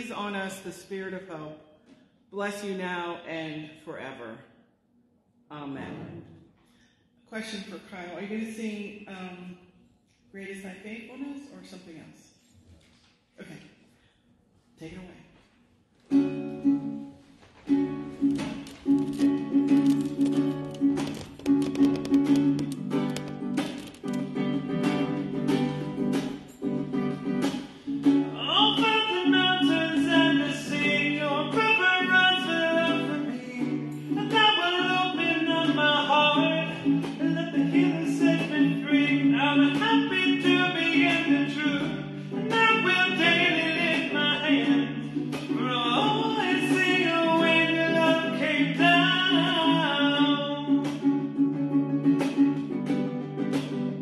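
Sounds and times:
ukulele strumming: 16.1 - 54.0
man singing: 28.3 - 51.2.

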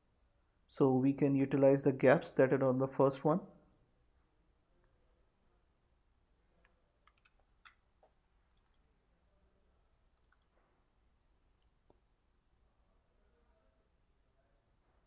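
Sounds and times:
computer mouse clicks: 6.6 - 8.9, 10.2 - 10.6
high ticks: 8.5 - 8.8, 10.2 - 10.5.

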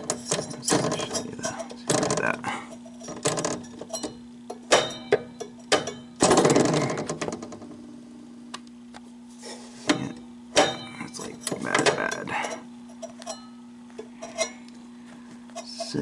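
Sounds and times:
clicks and knocks of handling metal: 0.0 - 7.6, 9.8 - 14.8
steady low hum: 0.0 - 16.0.

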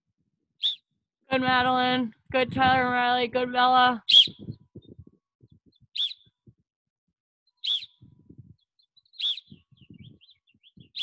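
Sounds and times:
whistle tweets: 0.6 - 0.9, 4.1 - 4.4, 5.9 - 6.3, 7.6 - 8.0, 9.2 - 10.2.

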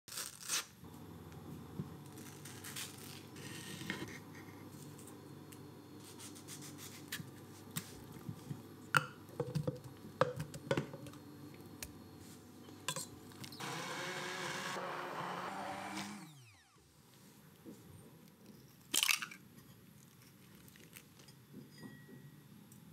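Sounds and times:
immersion blender running: 13.6 - 16.8.

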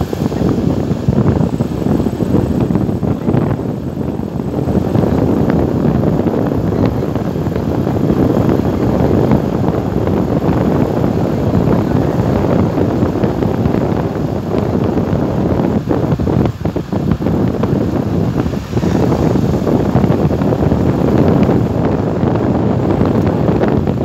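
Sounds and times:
road noise: 0.0 - 24.0
wind buffeting microphone: 0.0 - 24.0.

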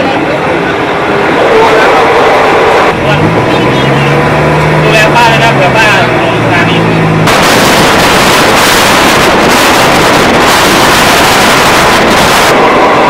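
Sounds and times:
train running on rails: 0.0 - 13.0
wind rushing on microphone: 6.0 - 13.0.

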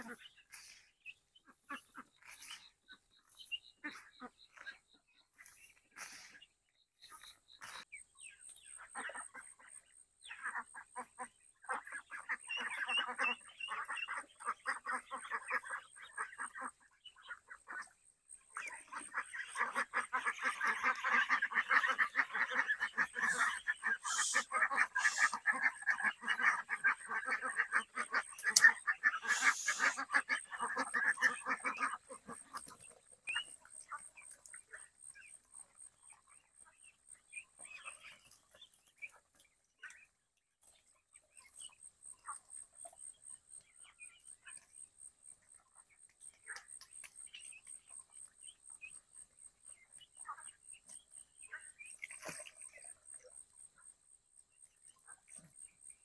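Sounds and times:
ducks quacking: 0.0 - 54.0.

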